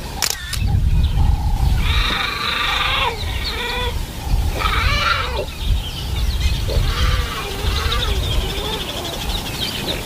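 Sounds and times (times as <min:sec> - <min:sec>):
steady low rumble: 0:00.0 - 0:09.7
leopard cub high-pitched cries: 0:01.8 - 0:05.5, 0:06.7 - 0:09.2.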